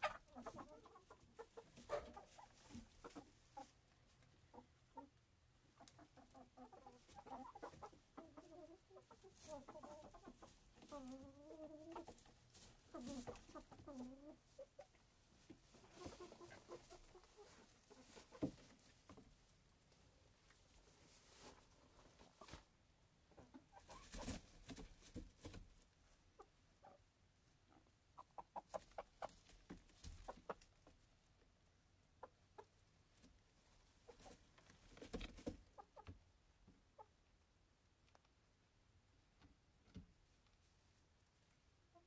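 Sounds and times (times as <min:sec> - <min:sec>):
rustling of feathers and hay: 0:00.0 - 0:22.7, 0:23.4 - 0:27.0, 0:28.6 - 0:31.4, 0:32.6 - 0:36.1
chickens clucking softly: 0:00.0 - 0:38.4, 0:39.1 - 0:42.0.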